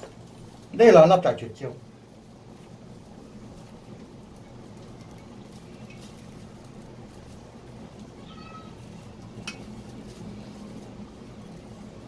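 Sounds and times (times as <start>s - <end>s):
steady low hum: 0.0s - 12.0s
high-pitched cry-like tone: 8.2s - 8.8s.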